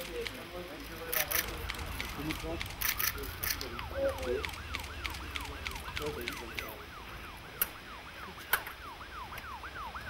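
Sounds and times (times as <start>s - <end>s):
emergency siren sweeping: 2.7s - 10.0s.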